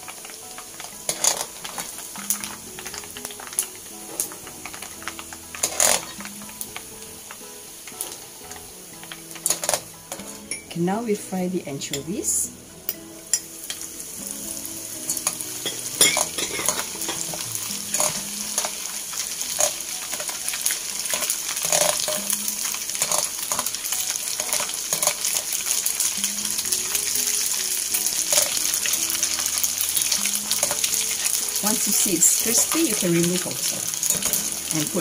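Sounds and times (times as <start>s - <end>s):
fish sizzling in hot oil: 0.0s - 35.0s
wire skimmer scraping pot: 5.5s - 6.2s, 21.2s - 22.2s.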